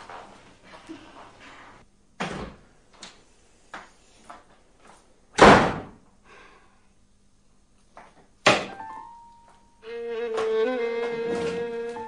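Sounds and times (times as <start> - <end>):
door slamming shut: 2.2 - 2.6, 5.4 - 6.0.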